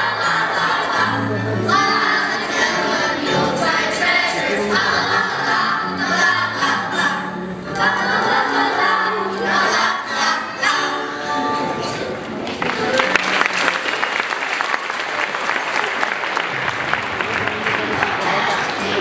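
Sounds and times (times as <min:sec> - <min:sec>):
children's choir singing: 0:00.0 - 0:12.1, 0:17.5 - 0:19.0
musical accompaniment: 0:00.0 - 0:14.1, 0:16.4 - 0:19.0.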